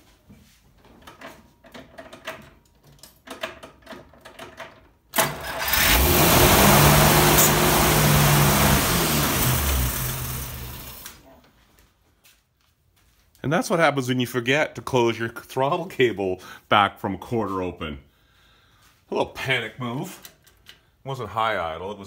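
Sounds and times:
car engine starting and revving: 5.2s - 11.2s.

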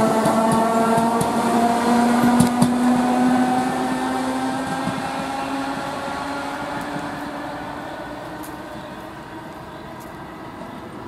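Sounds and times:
train wheels clacking: 0.0s - 1.6s, 2.2s - 2.9s
electric train drive whine: 0.0s - 11.0s.

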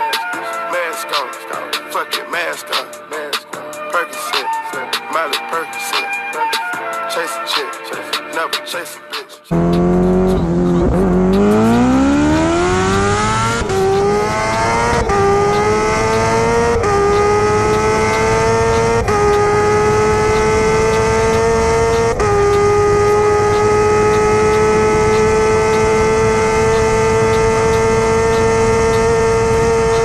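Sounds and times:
engine accelerating through gears: 9.5s - 30.0s.

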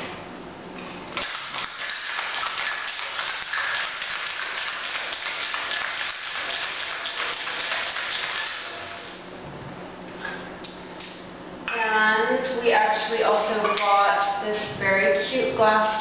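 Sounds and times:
ice rattling in cocktail shaker: 1.2s - 8.8s.

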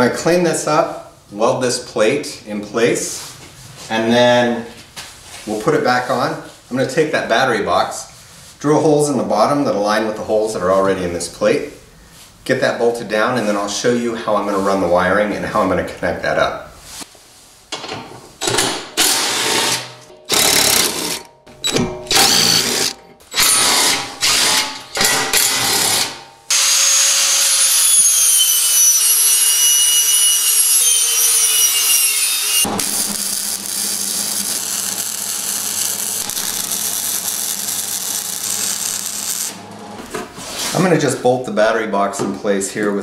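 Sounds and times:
power tool bursts: 19.0s - 39.6s
angle grinder whine: 20.3s - 24.6s, 26.0s - 39.9s
welder hissing: 26.5s - 39.6s.

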